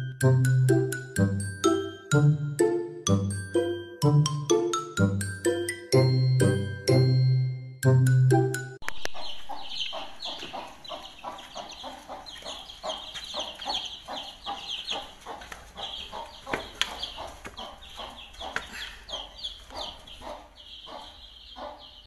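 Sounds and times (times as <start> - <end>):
chicks peeping: 8.8 - 22.0
hen clucking: 8.8 - 22.0.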